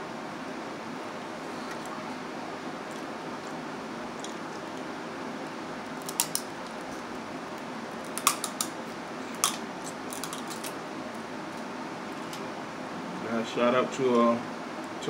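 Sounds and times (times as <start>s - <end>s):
electric fan whirring: 0.0s - 15.0s
crab shells cracking: 5.8s - 8.8s, 9.4s - 10.8s.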